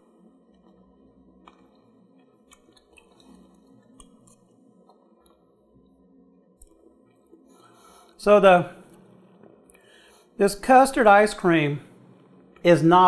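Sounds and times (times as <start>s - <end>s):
quiet room hum: 0.0s - 13.0s.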